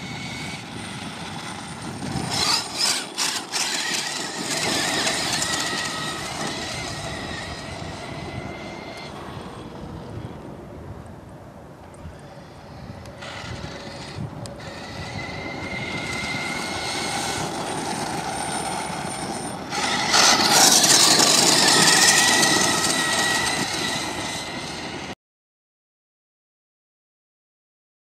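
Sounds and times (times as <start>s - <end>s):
tyres rushing on dirt: 0.0s - 10.3s, 13.1s - 25.2s
electric motor whine: 0.0s - 10.6s, 12.0s - 25.2s.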